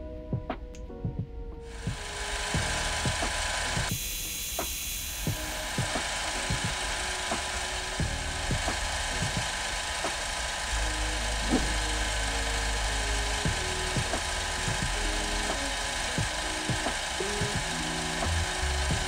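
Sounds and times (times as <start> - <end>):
lathe motor whining: 1.7 - 19.0.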